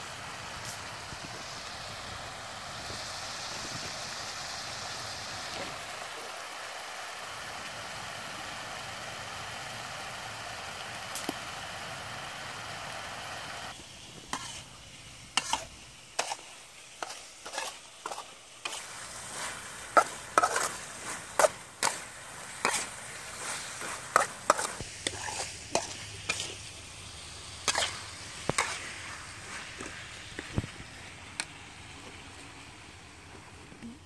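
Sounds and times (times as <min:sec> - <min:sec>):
faint sizzle: 0:00.0 - 0:34.0
spatula scraping metal wok: 0:14.3 - 0:26.8, 0:27.6 - 0:29.9.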